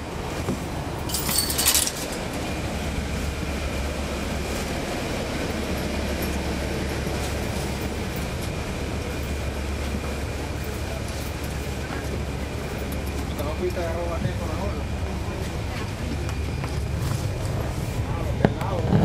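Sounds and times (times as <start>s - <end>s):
bus diesel engine drone: 0.0s - 19.0s
rattling: 1.0s - 2.4s.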